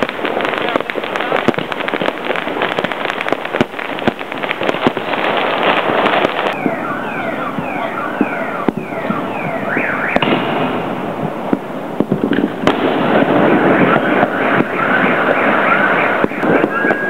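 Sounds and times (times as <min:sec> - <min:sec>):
firecrackers crackling: 0:00.0 - 0:17.0
firework bangs: 0:00.0 - 0:17.0
falling whistle-like tone: 0:14.7 - 0:17.0.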